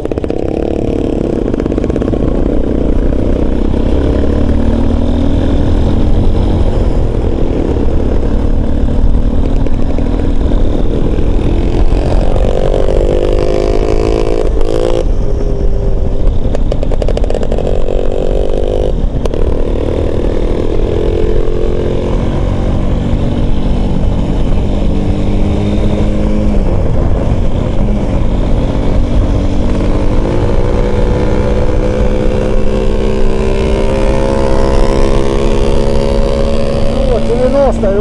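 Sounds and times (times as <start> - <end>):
motorcycle engine accelerating: 0.0 - 38.0
wind rumble on microphone: 0.0 - 38.0.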